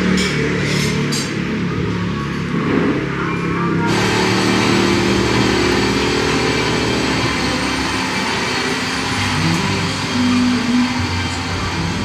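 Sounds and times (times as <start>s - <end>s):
road and wind noise: 0.0s - 9.0s
scooter engine running: 3.9s - 12.0s.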